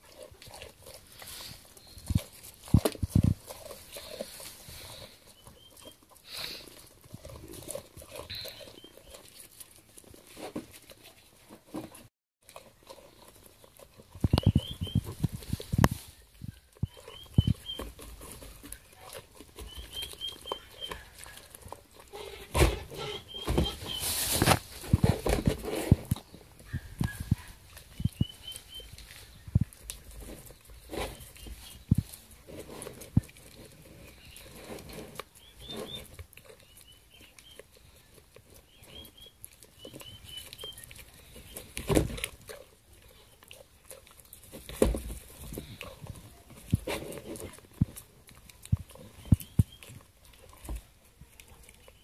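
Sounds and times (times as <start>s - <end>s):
goat chewing and slurping: 0.0s - 52.0s
birds chirping: 4.0s - 6.6s, 8.1s - 9.3s, 12.8s - 15.4s, 16.0s - 21.2s, 22.2s - 24.3s, 26.2s - 32.2s, 35.3s - 42.0s, 49.0s - 50.1s.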